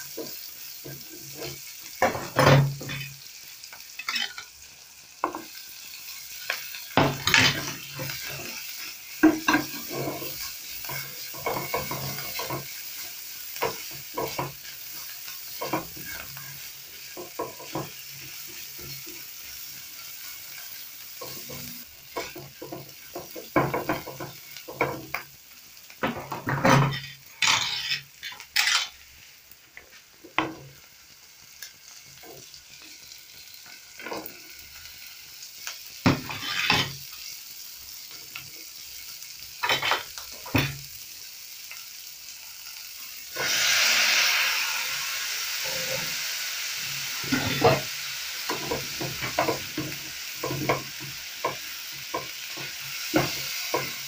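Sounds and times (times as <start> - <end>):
spatula scraping frying pan: 0.0 - 4.5, 5.2 - 25.2, 26.0 - 29.0, 36.0 - 37.3, 39.6 - 40.8, 45.6 - 46.2, 47.0 - 54.0
oil sizzling: 0.0 - 54.0.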